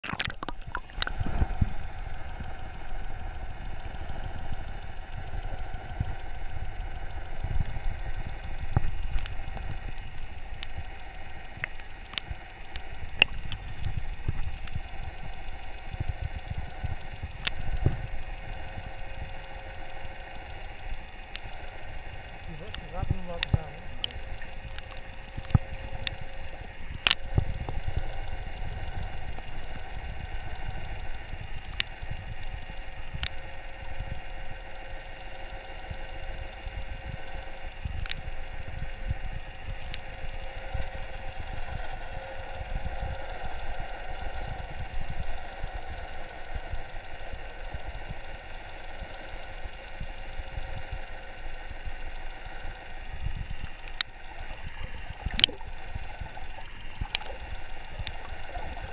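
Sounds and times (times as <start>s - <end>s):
faint steady hum: 0.0s - 58.9s
underwater moving water rumble: 0.0s - 58.9s
sharp clicks: 11.6s - 14.8s, 22.5s - 26.2s, 26.9s - 27.2s, 53.5s - 55.6s, 56.9s - 57.4s.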